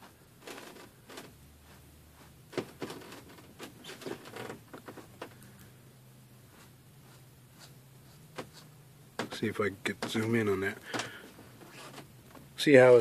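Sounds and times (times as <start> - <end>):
brush scratching on canvas: 1.6 - 2.5, 6.4 - 8.8.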